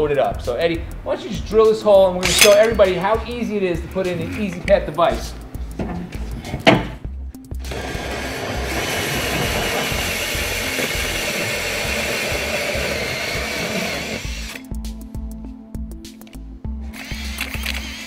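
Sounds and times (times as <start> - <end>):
background music with steady beat: 0.0 - 18.0
power drill hole saw cutting wallboard: 7.6 - 14.7, 16.9 - 18.0.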